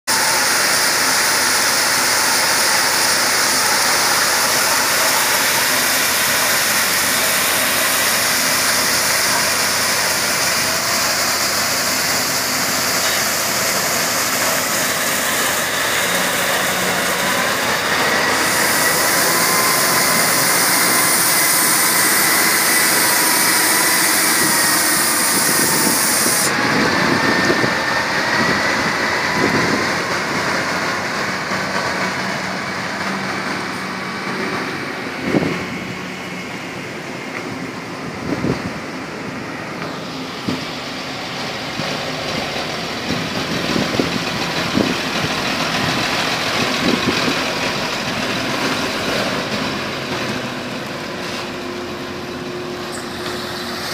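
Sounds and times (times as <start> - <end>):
high-pressure spray nozzles hissing: 0.1 - 26.8, 52.6 - 53.9
truck diesel engine running: 0.1 - 53.9.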